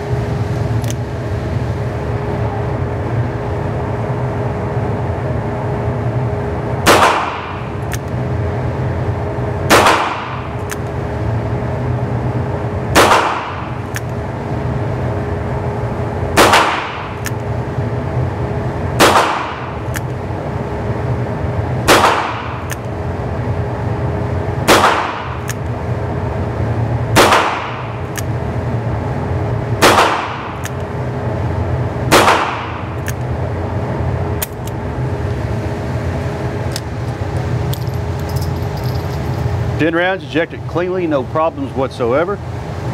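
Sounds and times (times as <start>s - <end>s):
low hum: 0.0s - 42.9s
revolver gunshots with echo: 6.8s - 7.7s, 9.6s - 10.5s, 12.9s - 13.8s, 16.3s - 17.2s, 19.0s - 19.8s, 21.8s - 22.7s, 24.6s - 25.5s, 27.1s - 27.9s, 29.8s - 30.6s, 32.1s - 32.9s.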